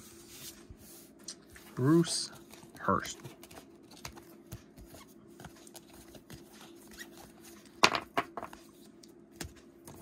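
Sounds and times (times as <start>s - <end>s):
plastic cards rustling: 1.8s - 7.8s.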